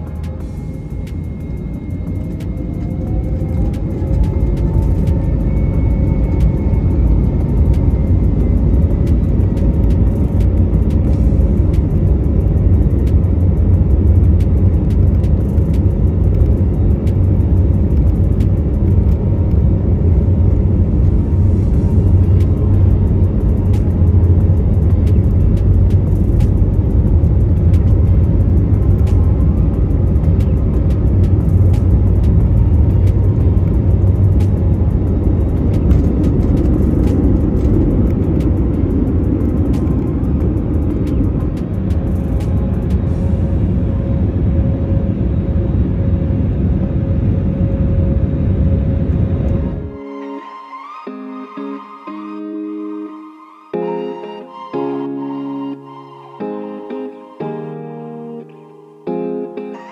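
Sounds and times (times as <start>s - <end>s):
aircraft cabin engine rumble: 0.0s - 50.0s.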